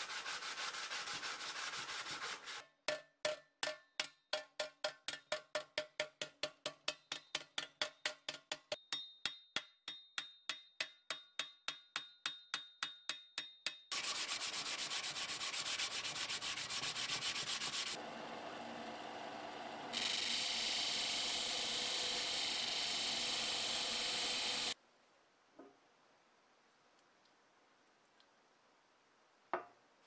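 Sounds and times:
sandpaper scraping steel: 0:00.0 - 0:02.7, 0:13.9 - 0:18.0, 0:19.9 - 0:24.8
hammer striking steel on anvil: 0:02.8 - 0:14.0.

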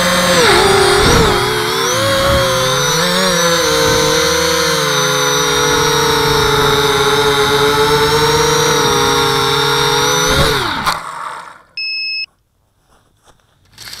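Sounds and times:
quadcopter motors whining: 0:00.0 - 0:12.3
drone landing knock: 0:00.4 - 0:07.4
short electronic beep: 0:11.8 - 0:12.3.

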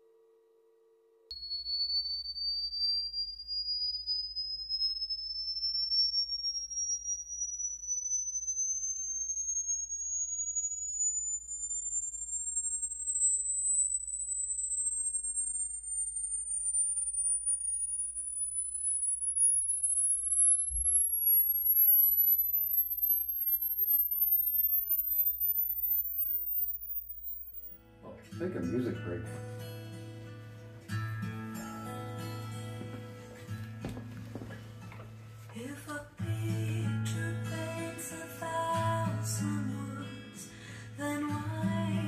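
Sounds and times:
fainter falling tone: 0:01.3 - 0:27.8, 0:36.3 - 0:42.0
rising sine sweep tone: 0:01.3 - 0:28.0, 0:36.2 - 0:42.0.

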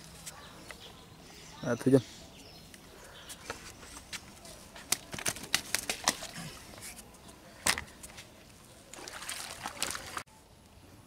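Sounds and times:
water splashing and sloshing: 0:08.7 - 0:10.3.

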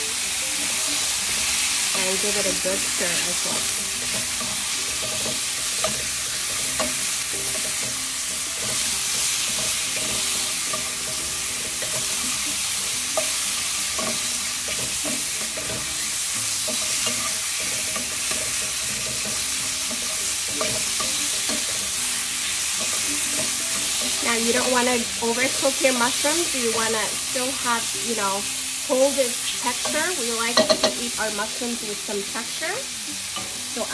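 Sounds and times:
mushrooms sizzling in a pan: 0:00.0 - 0:33.9
utensil scraping a pan: 0:01.2 - 0:27.0.

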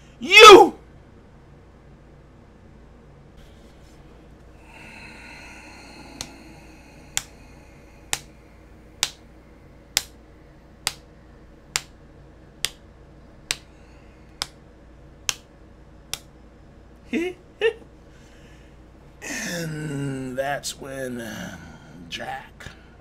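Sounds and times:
faint hum: 0:00.0 - 0:23.0
sharp snap-like clicks: 0:07.1 - 0:07.4, 0:08.1 - 0:08.3, 0:09.0 - 0:09.2, 0:09.9 - 0:10.2, 0:10.8 - 0:11.1, 0:11.7 - 0:12.0, 0:13.4 - 0:13.7, 0:14.4 - 0:14.6, 0:15.2 - 0:15.5, 0:16.1 - 0:16.3.

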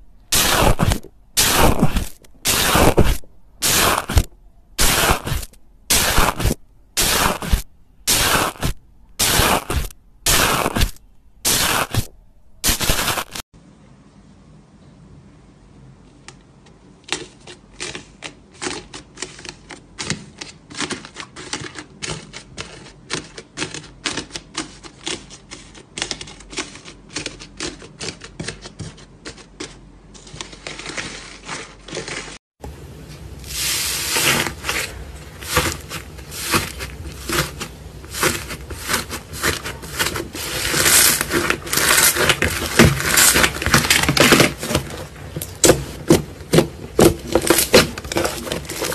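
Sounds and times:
crunchy slime crackling: 0:00.1 - 0:13.4, 0:33.2 - 0:48.9.

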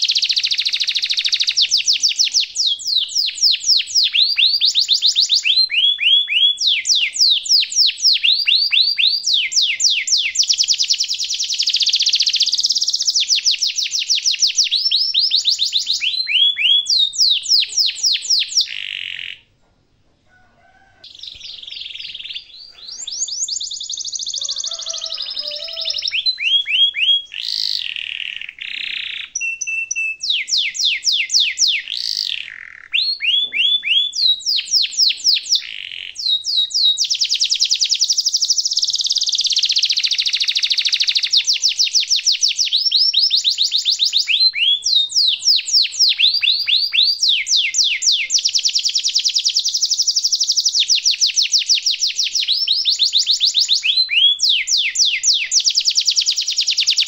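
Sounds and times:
canary singing trills: 0:00.0 - 0:19.6, 0:20.9 - 0:57.0.

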